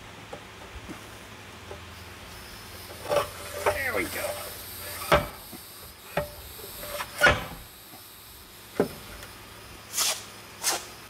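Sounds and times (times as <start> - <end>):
short rasping hisses: 9.9 - 11.0.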